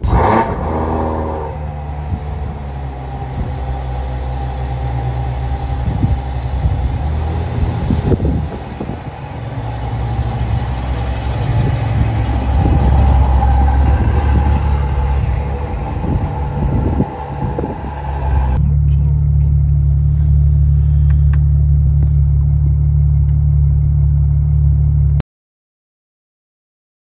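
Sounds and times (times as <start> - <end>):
car engine idling: 0.0 - 25.2
wind buffeting microphone: 5.3 - 18.6.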